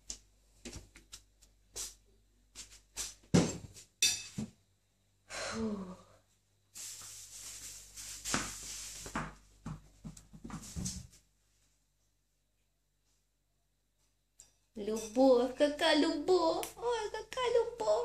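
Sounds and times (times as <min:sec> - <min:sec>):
footsteps on tiled floor: 0:06.8 - 0:11.2.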